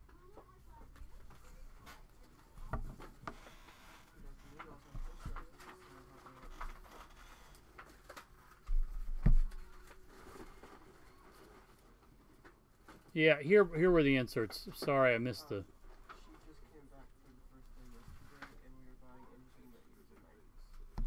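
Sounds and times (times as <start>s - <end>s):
cards and packaging rustling: 1.0s - 16.9s.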